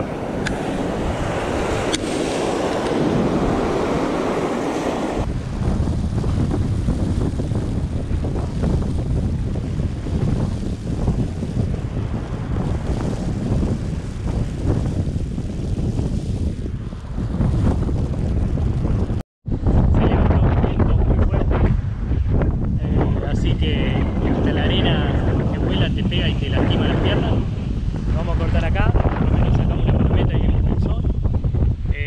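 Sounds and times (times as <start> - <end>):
surf washing over rocks: 0.0 - 17.5
wind buffeting microphone: 0.0 - 32.0.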